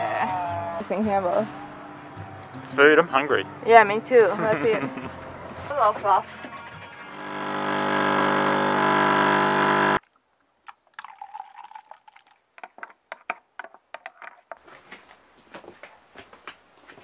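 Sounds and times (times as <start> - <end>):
espresso machine pump buzzing: 7.1 - 10.0
milk pouring into mug: 10.6 - 12.5.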